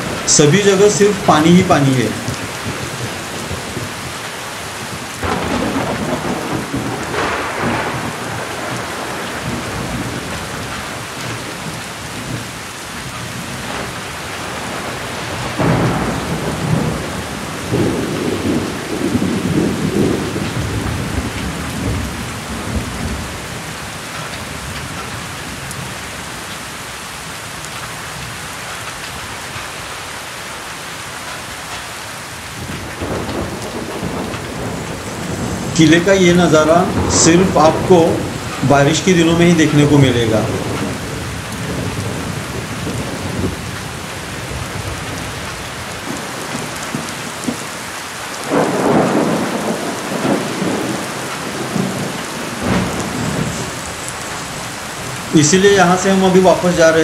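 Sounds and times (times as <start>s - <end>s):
heavy rain falling: 0.0s - 57.0s
wind gusting against microphone: 31.4s - 57.0s.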